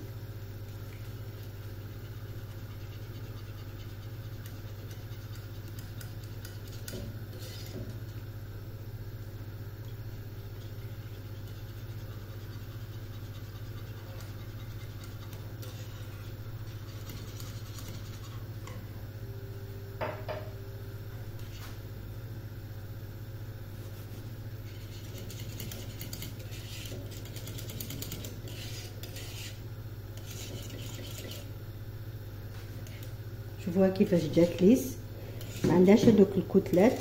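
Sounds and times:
steady low hum: 0.0s - 37.0s
whisk scraping and clinking in saucepan: 10.6s - 18.8s, 24.6s - 29.6s, 30.2s - 31.5s, 35.3s - 37.0s.

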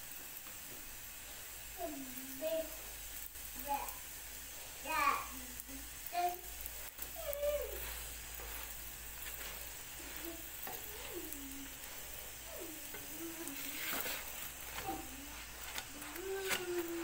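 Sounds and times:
flatbread sizzling in a pan: 0.0s - 17.0s
faint voice-like calls: 10.0s - 14.1s.

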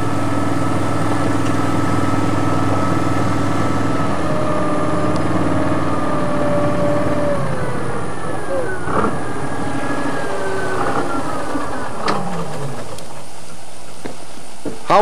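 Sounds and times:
engine idling drone: 0.0s - 15.0s.

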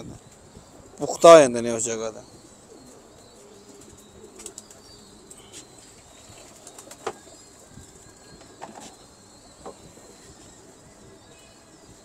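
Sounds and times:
pigeons tapping: 2.8s - 10.6s
pigeon wing flutters: 3.8s - 4.8s, 6.4s - 7.2s.

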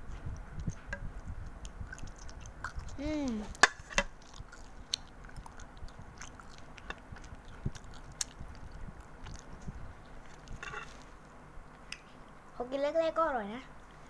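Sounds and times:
child chewing noodles: 0.0s - 11.2s
wet mouth clicks and smacks: 0.3s - 3.0s.

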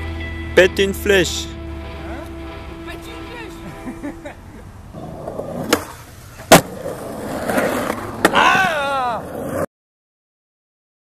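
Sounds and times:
skateboard wheels rolling on concrete: 2.0s - 9.7s
skateboard clacking on concrete: 5.0s - 9.6s.

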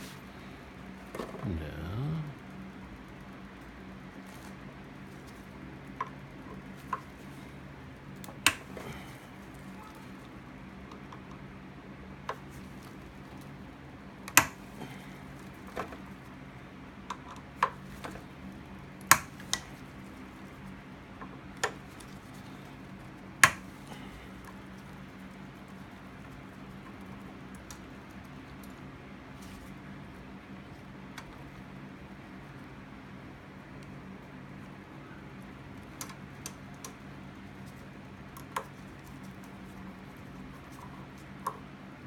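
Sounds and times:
faint low hum: 0.0s - 5.5s.

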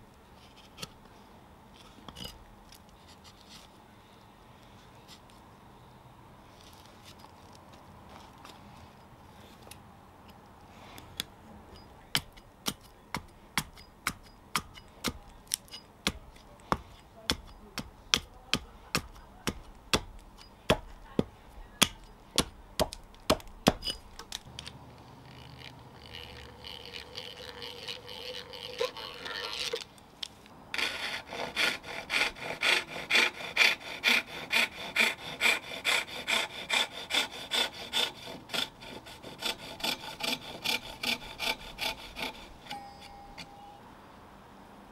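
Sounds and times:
hatchet chopping wood: 12.1s - 24.5s, 30.8s - 43.6s
saw cutting wood: 25.3s - 29.8s, 30.7s - 43.6s.

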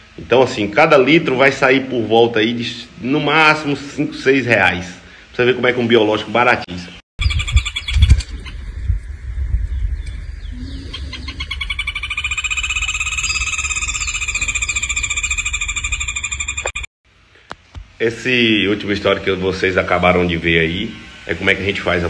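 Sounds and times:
low rumble on microphone: 7.2s - 12.0s
animal calling in pulsing trill: 10.5s - 16.9s.

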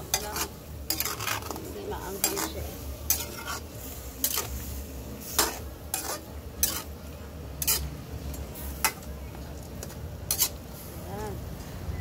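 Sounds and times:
utensil scraping a metal pan: 0.0s - 4.6s, 5.2s - 7.0s, 7.6s - 8.0s, 10.3s - 10.6s.

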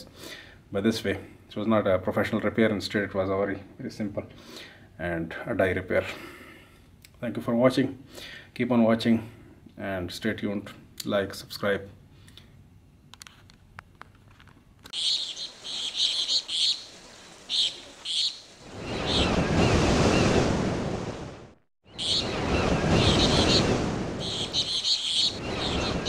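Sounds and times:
birds chirping: 14.9s - 20.4s, 21.8s - 26.0s
surf rushing: 15.0s - 26.0s.

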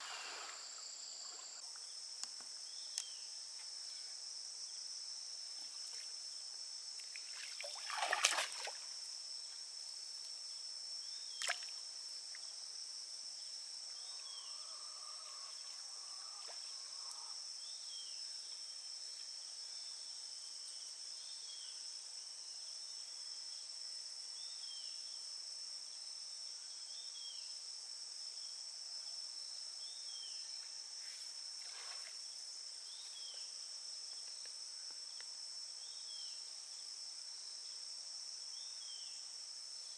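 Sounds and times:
insects droning: 0.0s - 39.9s
net splashing into water: 7.0s - 8.8s, 11.4s - 11.7s.

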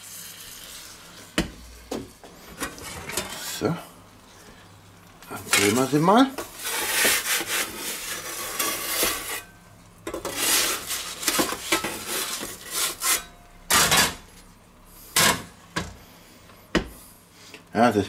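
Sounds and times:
metal peels scraping on stone: 5.4s - 9.5s, 10.1s - 14.2s.

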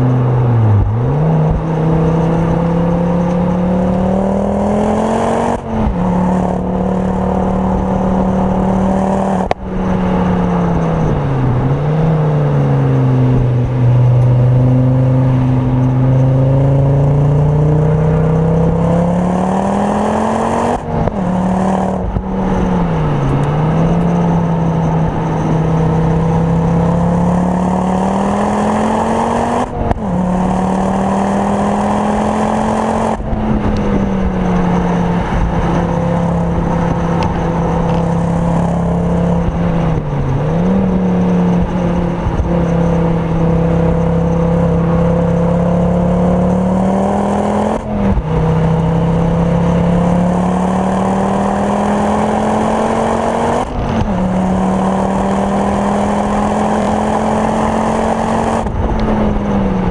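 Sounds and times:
car engine revving hard: 0.0s - 59.9s.

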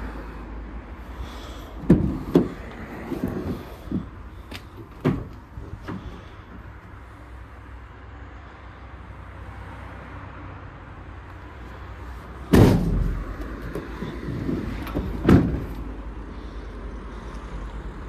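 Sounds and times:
van doors slamming: 1.5s - 6.7s, 12.4s - 16.0s.

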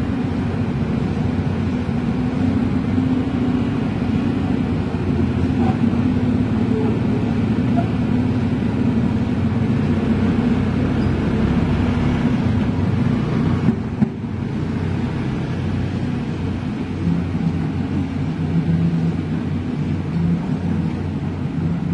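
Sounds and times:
excavator diesel engine running: 0.0s - 21.9s.

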